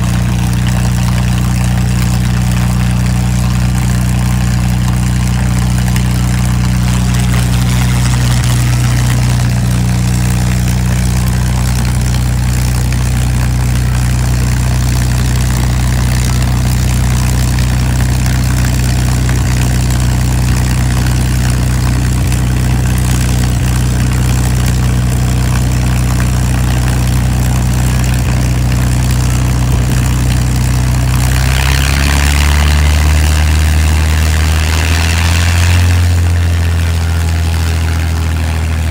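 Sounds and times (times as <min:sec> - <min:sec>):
piston engine running: 0:00.0 - 0:38.9.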